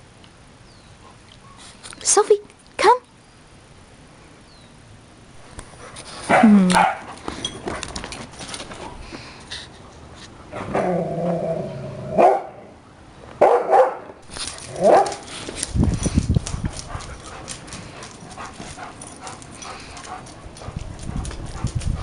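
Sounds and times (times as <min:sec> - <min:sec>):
dog barking: 0:06.3 - 0:07.1, 0:12.2 - 0:12.6, 0:13.4 - 0:14.1, 0:14.8 - 0:15.2
dog growling: 0:10.5 - 0:12.2.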